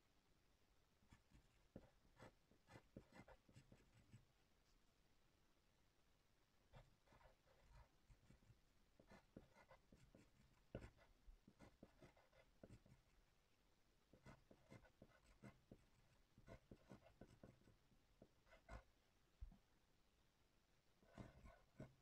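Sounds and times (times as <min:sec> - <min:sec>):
pencil scratching on paper: 0:01.1 - 0:04.3, 0:06.7 - 0:13.2, 0:14.1 - 0:18.9, 0:21.0 - 0:22.0.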